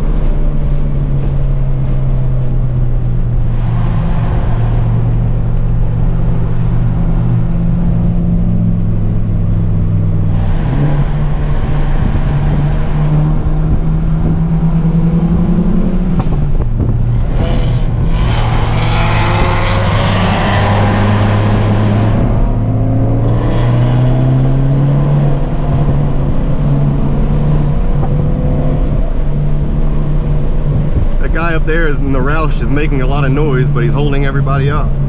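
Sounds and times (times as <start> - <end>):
car engine revving: 0.0 - 35.0
rushing roar: 10.0 - 35.0.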